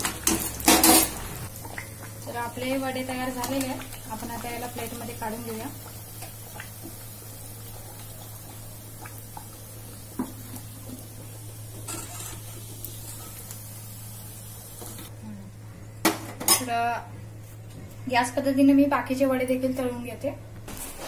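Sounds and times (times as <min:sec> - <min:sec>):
food sizzling in hot oil: 0:00.0 - 0:15.1.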